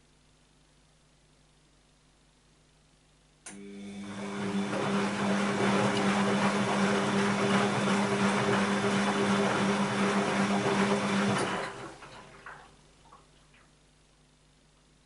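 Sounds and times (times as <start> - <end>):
washing machine running: 3.5 - 12.8.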